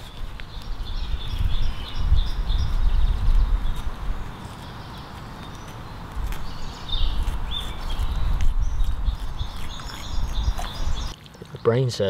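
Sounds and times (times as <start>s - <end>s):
wind rumble on microphone: 0.0s - 4.4s, 6.1s - 11.1s.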